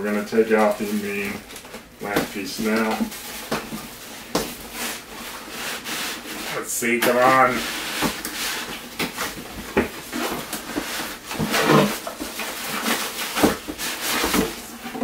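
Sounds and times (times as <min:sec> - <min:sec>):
cardboard scraping against box: 0:07.2 - 0:15.0.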